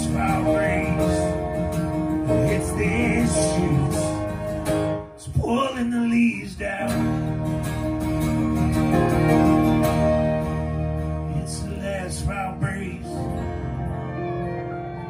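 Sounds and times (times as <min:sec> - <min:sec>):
fiddle playing: 0:00.0 - 0:05.0, 0:13.0 - 0:15.0
person singing: 0:00.0 - 0:07.3, 0:11.2 - 0:15.0
strummed acoustic guitar: 0:00.0 - 0:15.0.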